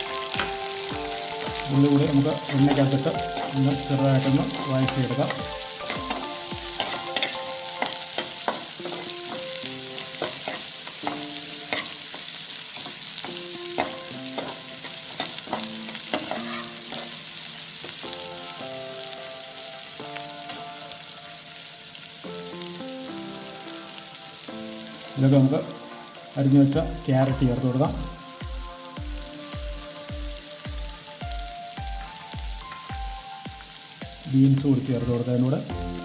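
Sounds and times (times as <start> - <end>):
food sizzling in hot oil: 0.0 - 36.0
metal spatula scraping pan: 13.8 - 17.2.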